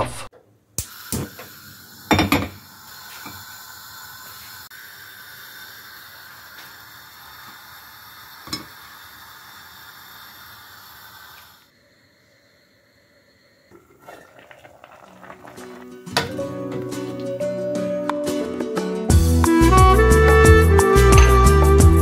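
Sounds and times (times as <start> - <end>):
pot sizzling hiss: 0.8 - 17.6.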